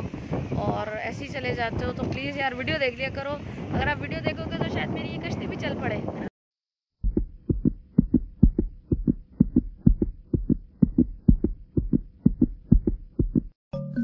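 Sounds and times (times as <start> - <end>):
low thumping beat: 7.0 - 13.6.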